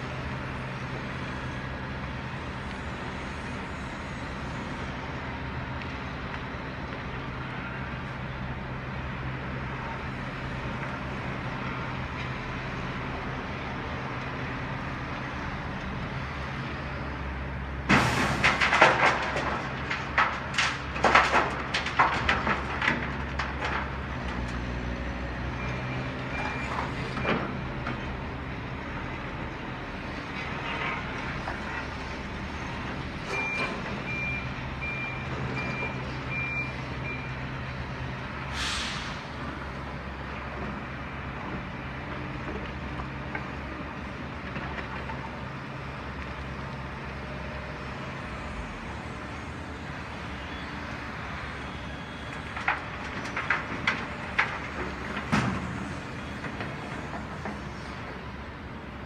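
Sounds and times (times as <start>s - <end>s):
diesel machinery running: 0.0s - 59.0s
air brake hiss: 38.5s - 39.3s.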